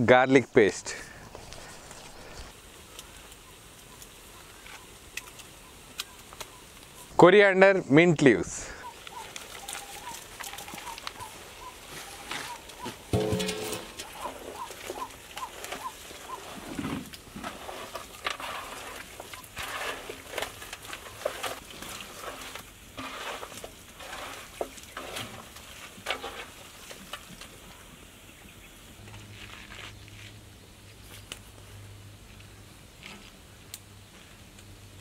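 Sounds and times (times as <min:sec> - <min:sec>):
hands squelching raw chicken: 0:14.0 - 0:22.6.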